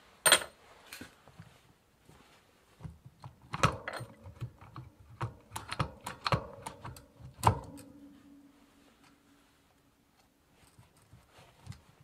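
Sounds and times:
metallic clicks and clacks: 0:03.5 - 0:08.0.

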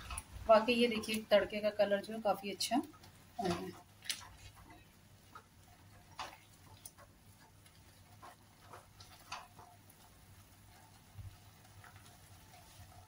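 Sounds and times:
spatula scraping a pan: 0:02.9 - 0:13.0.

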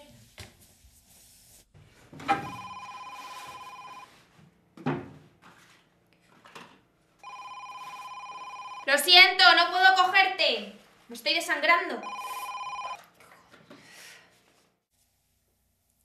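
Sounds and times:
telephone ringing two-tone warble: 0:02.4 - 0:04.1, 0:07.2 - 0:08.9, 0:12.0 - 0:13.0.

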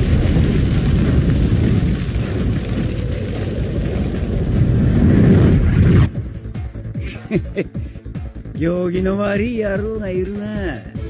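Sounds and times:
rushing flames rumble: 0:00.0 - 0:08.1.

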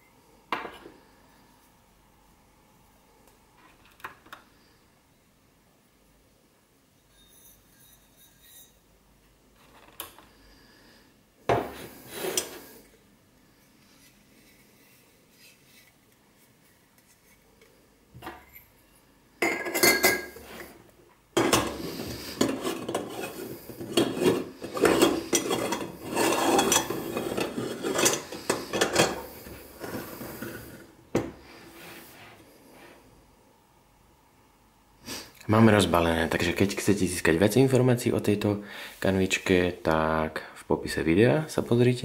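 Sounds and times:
metal scraping and rubbing: 0:21.4 - 0:30.9
metal moka pot parts clinking: 0:22.4 - 0:29.2.

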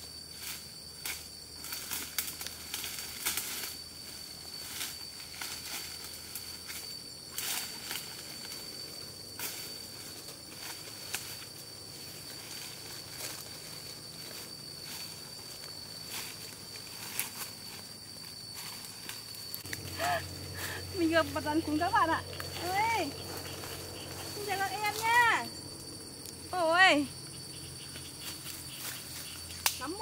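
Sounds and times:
high-pitched insect call: 0:00.0 - 0:30.0.

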